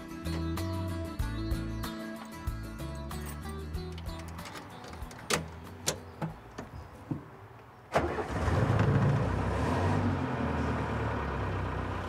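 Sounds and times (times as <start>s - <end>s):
van engine starting and idling: 7.9s - 12.0s.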